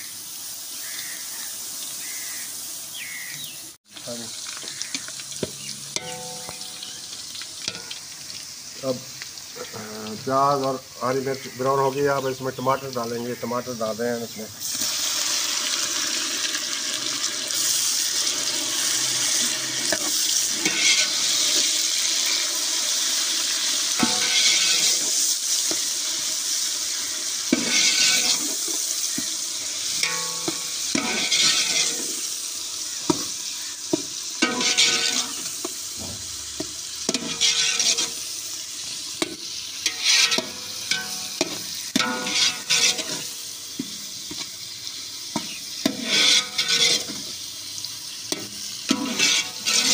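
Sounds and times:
tomatoes sizzling in oil: 0.0s - 49.9s
steel ladle scraping pot: 4.6s - 8.1s, 17.6s - 21.9s, 24.0s - 25.8s, 27.5s - 32.3s, 33.9s - 38.4s, 39.2s - 43.9s, 45.4s - 47.4s, 48.3s - 49.9s.

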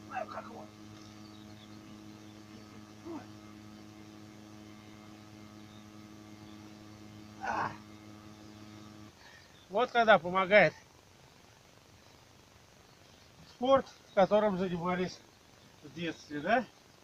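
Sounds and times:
electrical hum: 0.0s - 17.0s
man grunting with effort: 0.1s - 0.6s, 7.4s - 7.8s.

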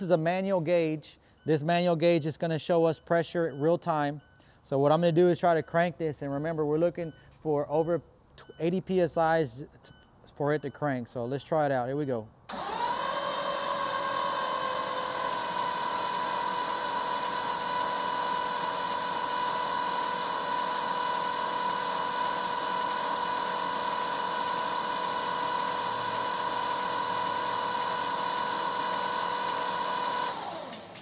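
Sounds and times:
starter motor cranking engine: 12.5s - 31.0s.

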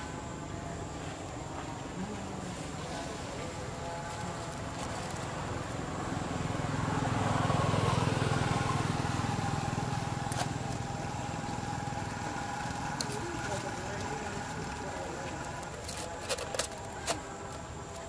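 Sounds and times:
motor vehicle passing by: 4.6s - 15.7s.

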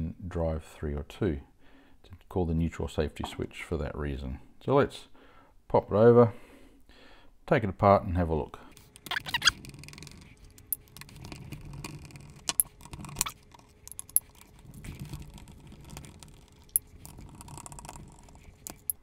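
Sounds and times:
metallic screw clicks: 9.0s - 14.4s, 15.9s - 19.0s.

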